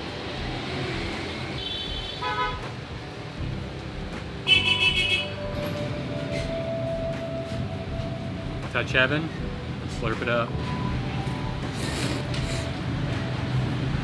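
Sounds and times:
traffic noise: 0.0 - 14.0
vehicle horns honking: 1.6 - 2.7, 4.4 - 5.4.

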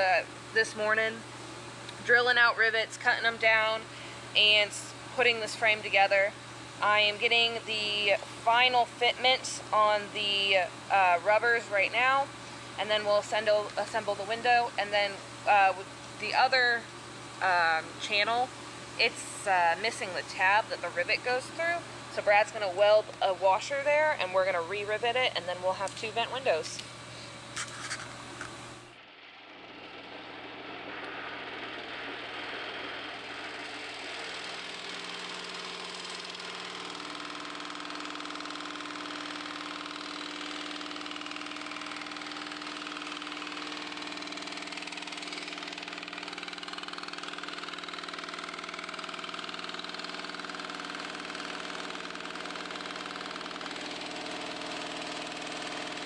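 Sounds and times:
milling machine humming: 16.9 - 56.0.

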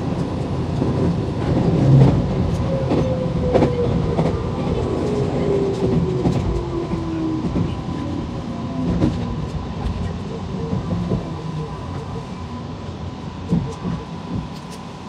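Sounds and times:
electric train rumbling: 0.0 - 15.0.

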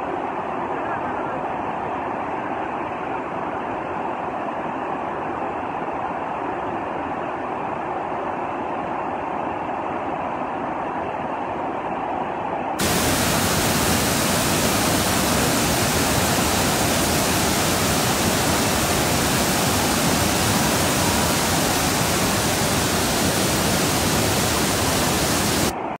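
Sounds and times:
river rapids roaring: 12.8 - 25.8.

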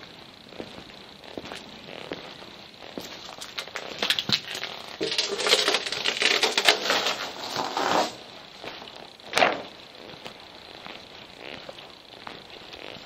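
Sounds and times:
debris crunching underfoot: 0.6 - 10.2.

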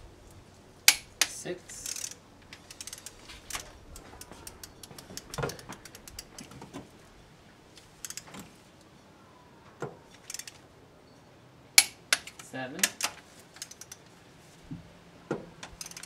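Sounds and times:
torque wrench ratchet clicking: 0.9 - 3.6, 4.2 - 6.5, 8.0 - 8.3, 10.2 - 10.6, 11.8 - 14.0, 15.6 - 16.0.

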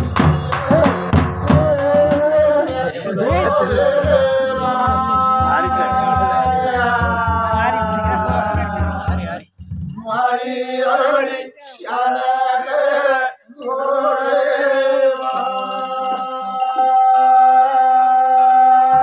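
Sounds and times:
drum beats: 0.0 - 14.1
man singing a chant: 0.1 - 9.4, 10.0 - 19.0.

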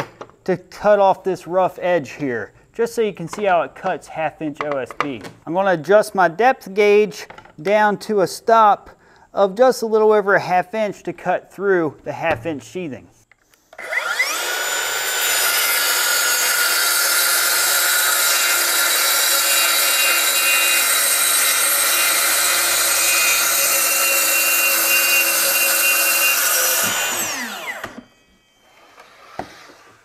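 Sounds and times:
saw motor winding down: 13.8 - 29.7
track saw cutting wood: 13.8 - 30.0.

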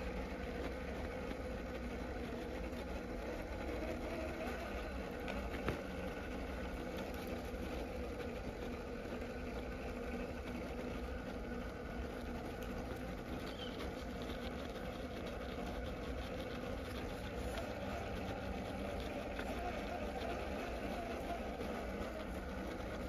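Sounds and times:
electric motor whirring with gear whine: 0.0 - 23.0.

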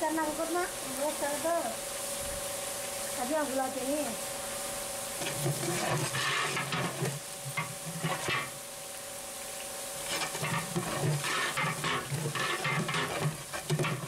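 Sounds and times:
onions sizzling in oil: 0.0 - 14.0
metal spatula scraping pot: 5.2 - 8.6, 10.1 - 14.0.

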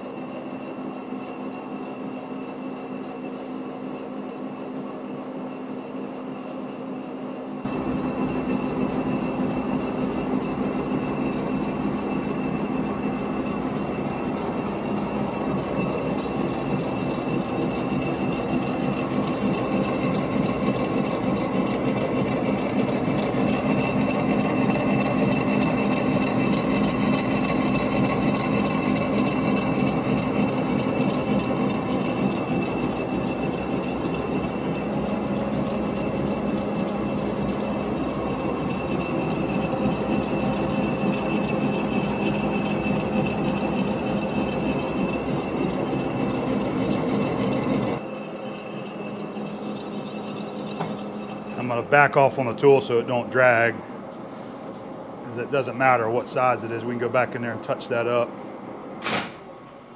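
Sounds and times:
lathe cutting steel with whine: 0.0 - 54.2, 55.0 - 59.0.

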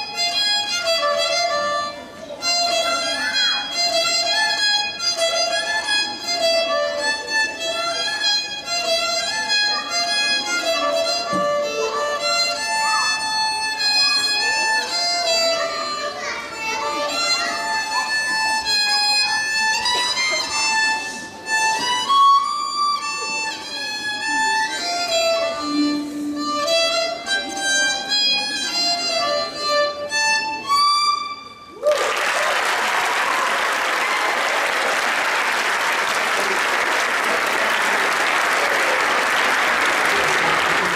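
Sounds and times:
solo violin melody: 0.0 - 31.7
audience applause: 31.8 - 40.9.

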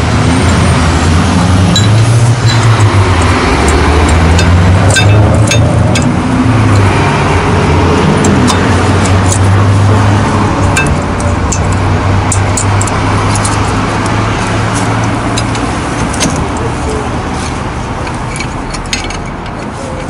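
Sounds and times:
engine humming: 0.0 - 20.0
traffic noise: 0.0 - 20.0.

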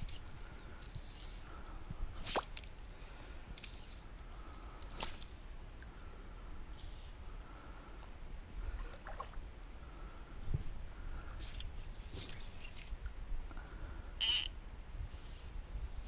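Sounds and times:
small animal calls: 14.2 - 14.5.

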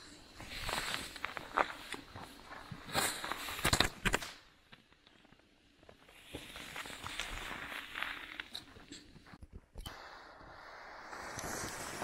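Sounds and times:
footsteps crunching in snow: 0.0 - 3.6, 5.8 - 9.4
firework pops and cracks: 3.0 - 4.5, 9.9 - 12.0.

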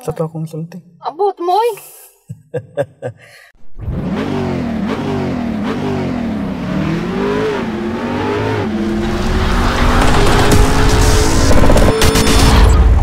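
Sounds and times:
car engine accelerating through gears: 3.7 - 12.6.

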